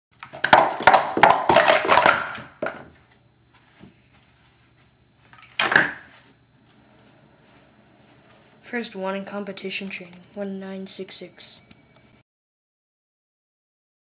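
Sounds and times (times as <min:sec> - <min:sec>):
plastic cups clattering: 0:00.2 - 0:02.9.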